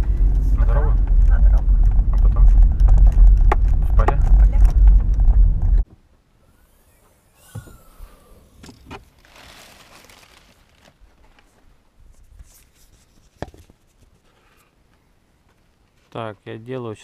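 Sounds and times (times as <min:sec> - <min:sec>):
bags and boxes rustling: 0:09.0 - 0:11.6.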